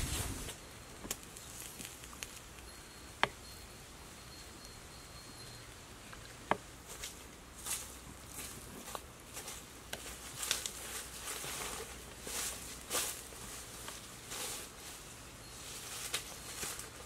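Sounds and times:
wood fire crackling and popping: 0.0s - 3.4s
faint steady hiss: 0.0s - 17.0s.

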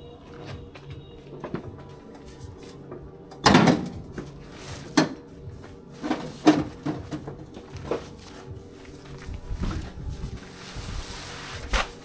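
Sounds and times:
heavy thuds on metal truck bed: 3.4s - 4.1s.

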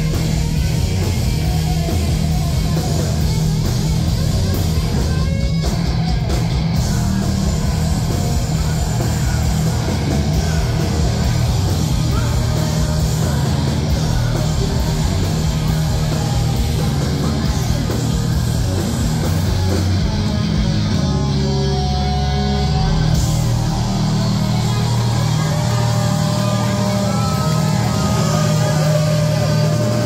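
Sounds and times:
punk rock band playing: 0.0s - 30.0s
ringing guitar and bass chords: 0.0s - 30.0s.

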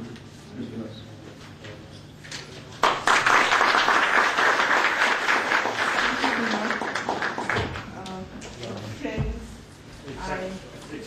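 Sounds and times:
audience applauding: 2.8s - 8.0s.

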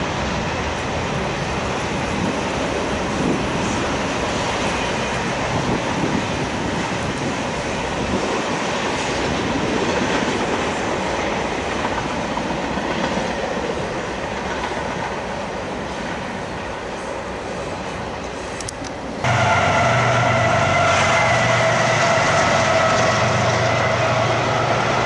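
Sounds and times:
train wheels running on rails: 0.0s - 25.0s.

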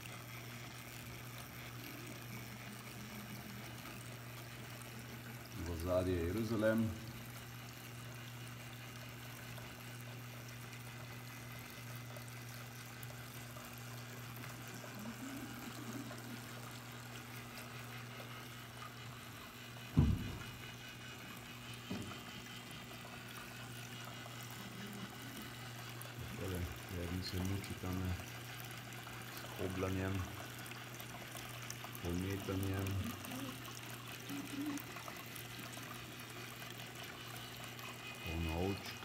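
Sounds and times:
water trickling: 0.0s - 39.0s
thump: 19.9s - 20.6s, 21.9s - 22.1s.

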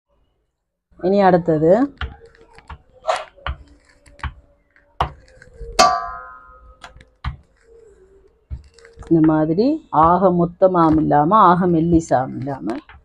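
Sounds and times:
metallic ring: 5.8s - 6.8s
rolling pin knocking on dough: 8.5s - 13.0s.

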